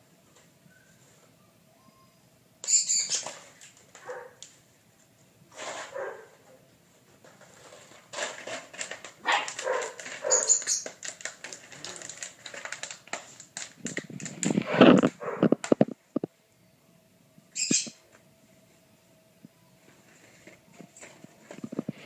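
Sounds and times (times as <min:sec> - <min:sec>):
puppies growling and scuffling: 0:07.2 - 0:16.2
claws clicking on tile floor: 0:08.1 - 0:16.0
puppies yipping: 0:09.3 - 0:10.9.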